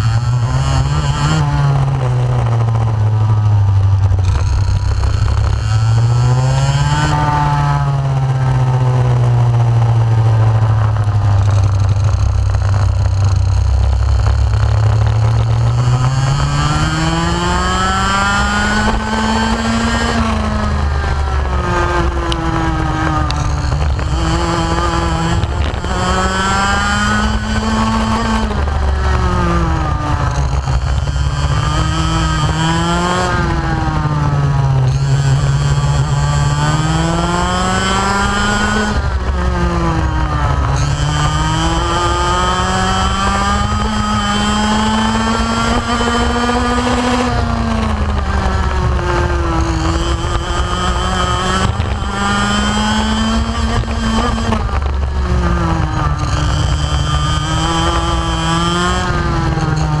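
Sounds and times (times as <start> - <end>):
two-stroke kart engine at full throttle: 0.0 - 60.0.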